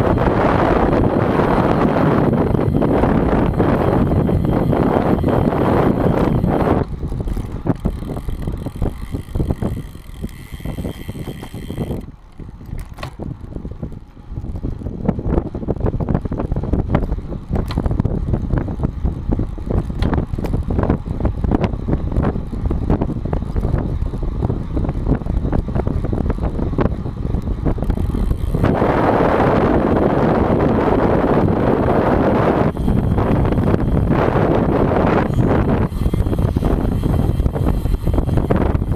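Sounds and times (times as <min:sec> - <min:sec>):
bicycle road rumble: 0:00.0 - 0:38.9
wind on microphone: 0:00.0 - 0:38.9
rattling clicks and knocks: 0:07.0 - 0:13.3.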